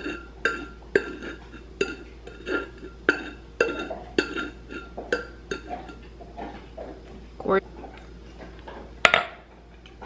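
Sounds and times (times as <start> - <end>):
glass clinking on plate: 0.0 - 6.1.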